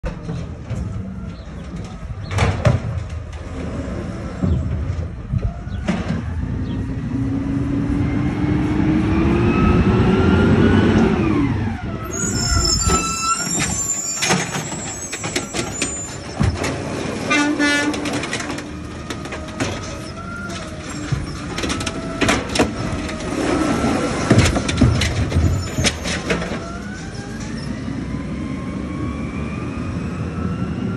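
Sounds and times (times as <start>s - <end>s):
trash cart banging: 0.0s - 6.8s, 12.1s - 27.6s
garbage truck engine revving: 6.1s - 30.9s
hydraulic arm knocking and clanking: 24.1s - 26.7s.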